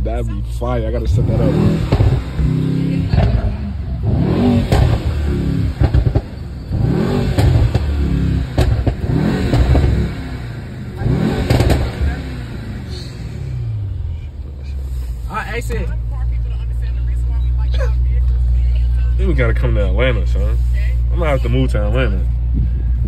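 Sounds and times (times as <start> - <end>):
exhaust cracks: 0.6 - 13.8
car engine accelerating through gears: 0.9 - 14.0.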